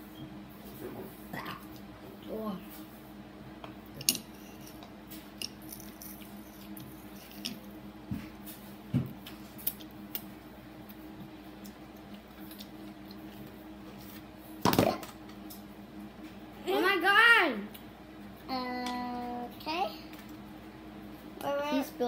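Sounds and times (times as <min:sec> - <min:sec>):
steady low hum: 0:00.0 - 0:22.0
soft chewing: 0:03.8 - 0:14.3.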